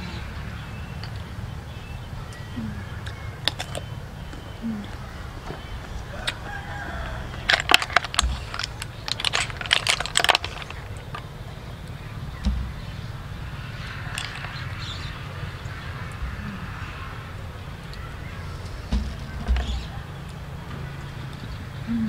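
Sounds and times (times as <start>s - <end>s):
snail shells clicking on metal tray: 3.0s - 12.0s, 13.8s - 15.1s.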